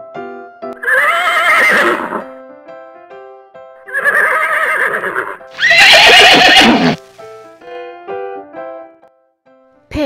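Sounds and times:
light piano music: 0.0s - 10.0s
horse whinnying: 0.8s - 2.3s, 3.9s - 7.0s.

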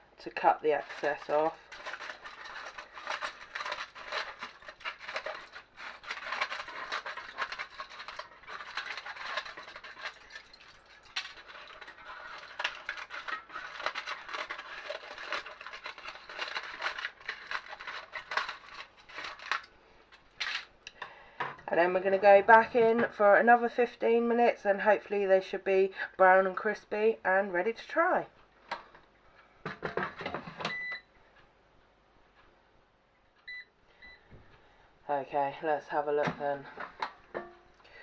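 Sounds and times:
aluminium foil crinkling: 0.2s - 20.7s
scissors cutting foil: 0.8s - 19.7s.

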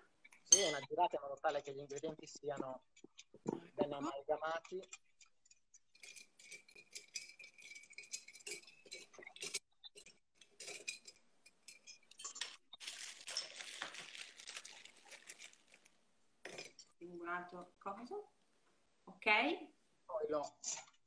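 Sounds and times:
ice cubes clinking in glass: 10.5s - 15.8s.

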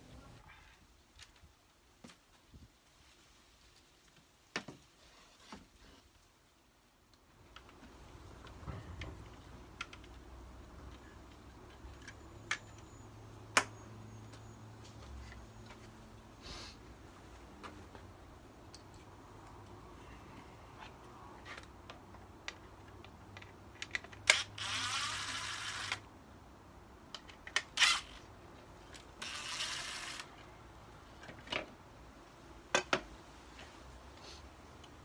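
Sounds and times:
cordless drill running: 24.3s - 26.0s, 29.2s - 30.3s.

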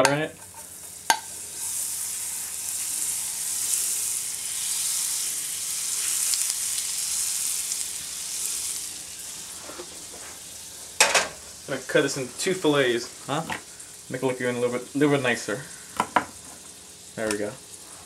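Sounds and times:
butter sizzling in a pan: 0.0s - 18.0s
spoon tapping a pan: 1.1s - 1.3s.

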